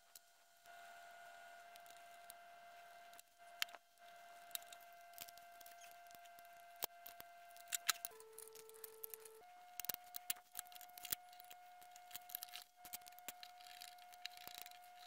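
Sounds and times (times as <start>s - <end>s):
small plastic parts clicking: 3.1s - 15.0s.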